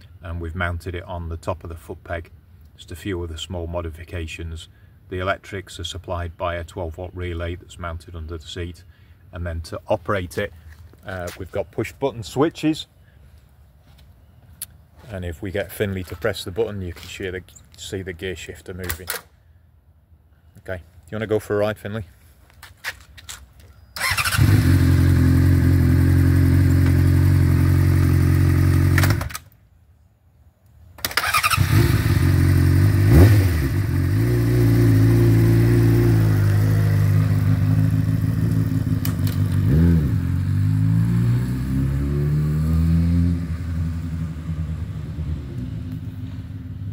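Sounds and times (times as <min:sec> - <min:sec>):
motorcycle engine idling and revving: 0:24.0 - 0:29.4, 0:31.2 - 0:46.9.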